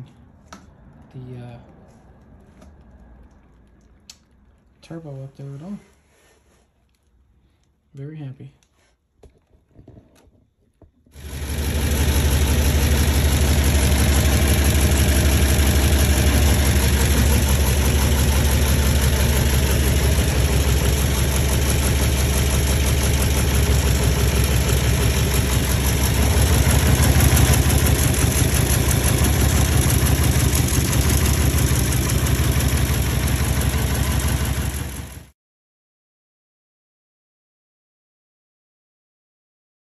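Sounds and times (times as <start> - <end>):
car engine idling: 11.2 - 35.3.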